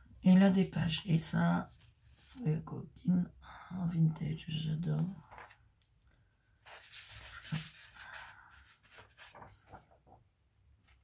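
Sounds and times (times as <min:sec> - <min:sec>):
paper rustling: 0:05.0 - 0:05.7, 0:06.6 - 0:10.2.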